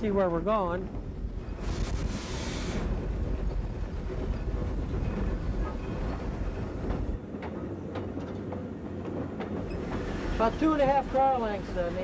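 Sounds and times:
steam locomotive low rumble: 0.0 - 12.0
steam hiss: 1.5 - 3.1.

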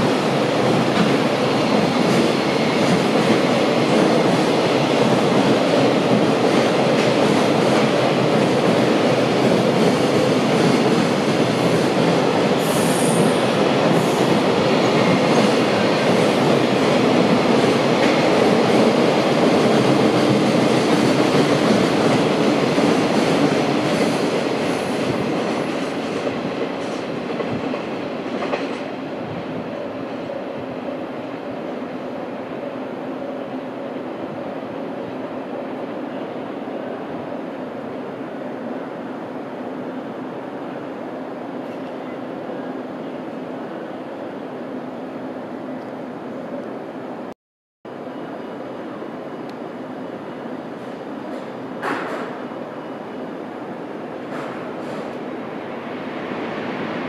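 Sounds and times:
train wheels rumbling on rails: 0.0 - 30.2, 50.7 - 52.6, 53.7 - 57.0.

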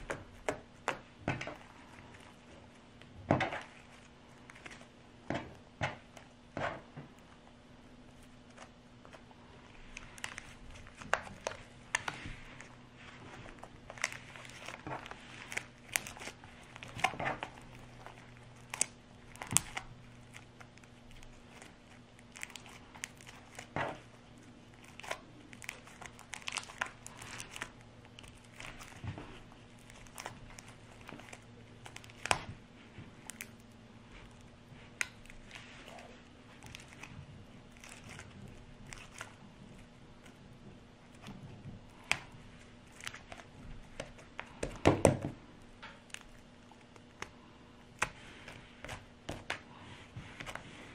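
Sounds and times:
faint steady hum: 0.0 - 50.9
sticky slime clicks and crackles: 13.6 - 32.5.

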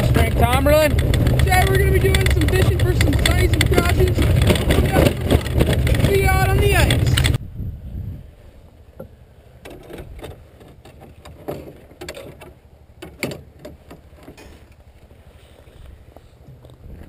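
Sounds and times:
gear knocking and rattling in sled: 0.0 - 7.4
atv engine rumbling: 0.0 - 17.0.

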